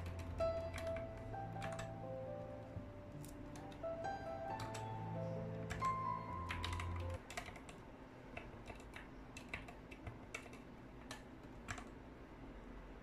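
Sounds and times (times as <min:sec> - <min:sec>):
background music: 0:00.0 - 0:07.2
mechanical keyboard key clacks: 0:05.7 - 0:11.9.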